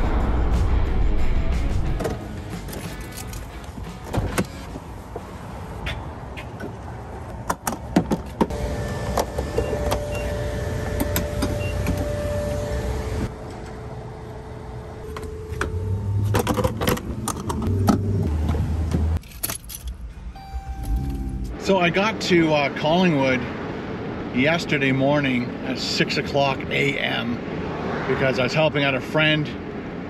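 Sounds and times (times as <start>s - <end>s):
car door opening: 2.0s - 4.9s.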